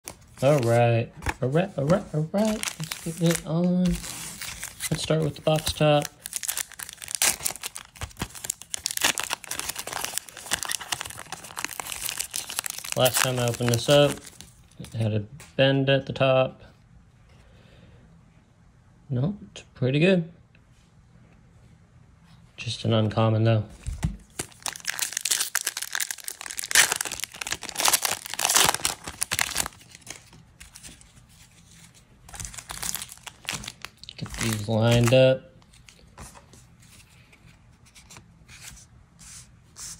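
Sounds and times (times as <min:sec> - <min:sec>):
foil wrapper crinkling and tearing: 0:01.8 - 0:14.8, 0:24.3 - 0:31.0, 0:32.3 - 0:35.2.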